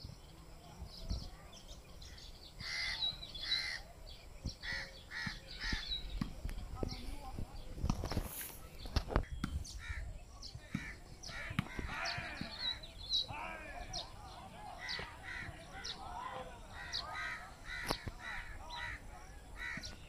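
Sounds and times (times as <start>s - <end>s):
birds chattering: 0.0s - 20.0s
short harsh bird calls: 2.0s - 3.9s, 4.5s - 6.2s.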